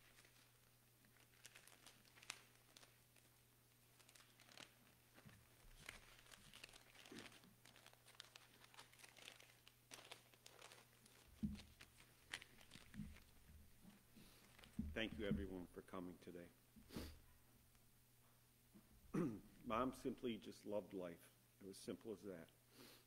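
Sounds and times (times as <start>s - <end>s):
paper rustling and crinkling: 0.0s - 15.5s.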